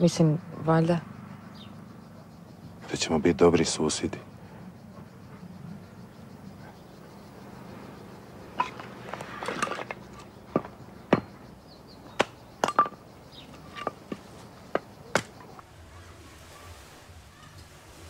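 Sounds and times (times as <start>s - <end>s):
stone slabs knocking and clinking: 8.6s - 11.4s, 12.1s - 15.6s.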